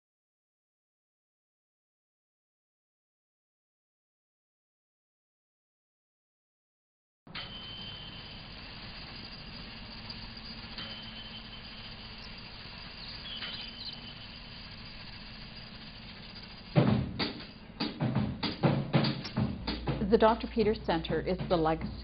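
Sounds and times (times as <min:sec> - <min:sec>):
music with drum beat: 0:16.4 - 0:22.0.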